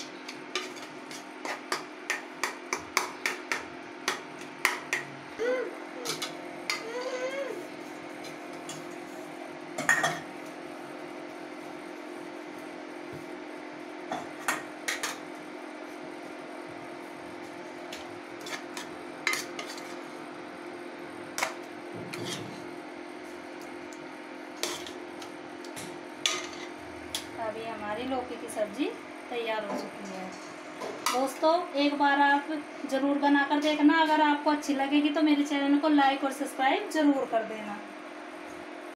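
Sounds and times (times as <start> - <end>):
spoon scraping metal pot: 18.4 - 20.0, 22.1 - 22.6, 26.2 - 27.3.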